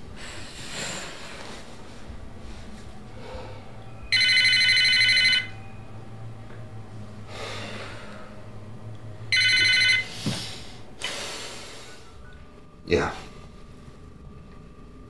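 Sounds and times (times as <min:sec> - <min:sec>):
mobile phone ringing: 0:04.1 - 0:05.8, 0:09.3 - 0:10.1.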